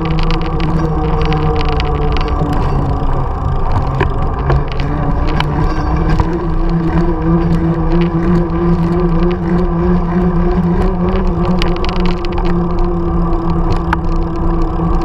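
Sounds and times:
bike clicks and rattles: 0.0s - 15.0s
bike tyres humming on pavement: 0.0s - 15.0s.

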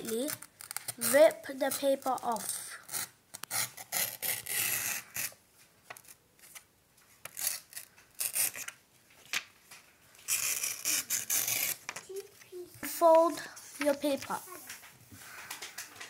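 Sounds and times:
paper tearing along ruler: 0.0s - 5.4s, 7.2s - 8.7s, 10.2s - 12.0s.

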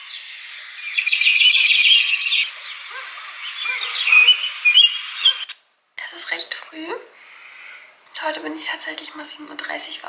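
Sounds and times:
birdsong alarm from phone speaker: 0.0s - 5.6s.

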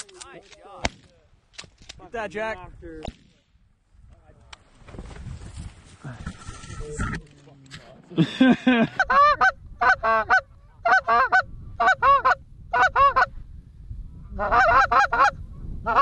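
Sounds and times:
geese honking: 9.0s - 13.3s, 14.4s - 16.0s.

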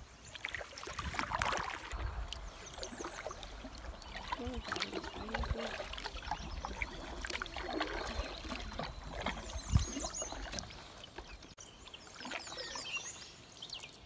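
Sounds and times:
paddle splashing water: 0.0s - 14.0s
small knocks on canoe: 4.2s - 11.4s.

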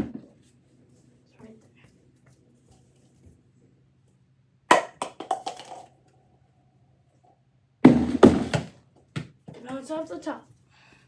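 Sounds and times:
football hitting plastic bin: 7.8s - 9.4s.

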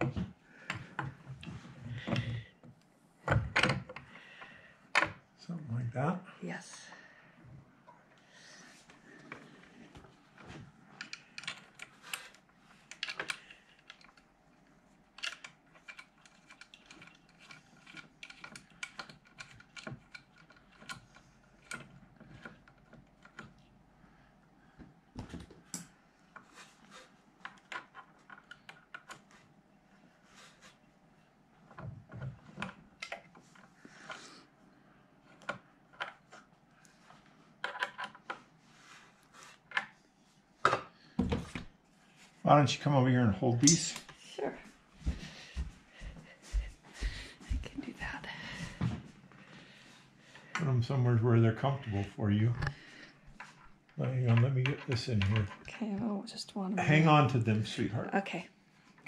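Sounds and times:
parts clicking and knocking: 10.9s - 23.8s.

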